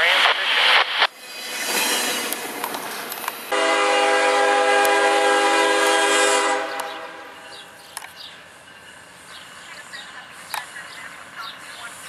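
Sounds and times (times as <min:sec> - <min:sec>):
freight train cars rushing past: 0:00.0 - 0:12.0
locomotive air horn chord: 0:03.5 - 0:07.5.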